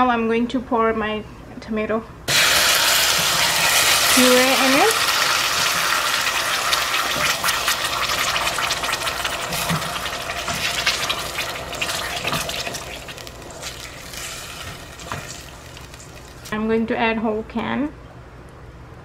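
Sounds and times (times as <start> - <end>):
sauce sizzling in hot oil: 2.3 - 16.6
spatula stirring sauce: 5.1 - 16.6.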